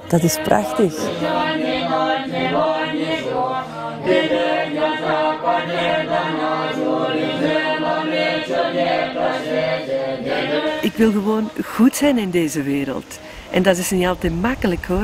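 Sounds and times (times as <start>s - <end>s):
monks chanting in unison: 0.0s - 11.6s.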